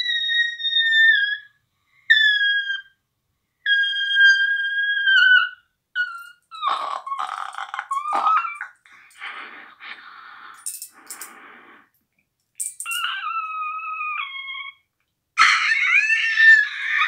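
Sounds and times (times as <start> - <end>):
low raspy sound: 6.6 - 12.0.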